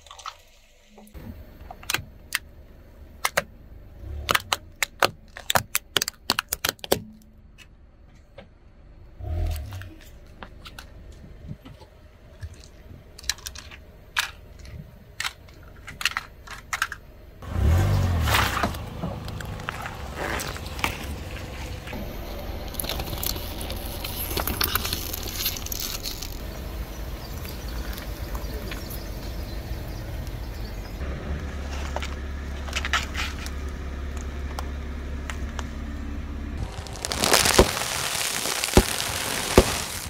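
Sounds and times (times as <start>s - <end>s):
car engine rumble: 0.3s - 40.0s
tyre crunching snack bags: 22.7s - 26.7s, 36.6s - 40.0s
tyre crushing fruit: 36.6s - 40.0s.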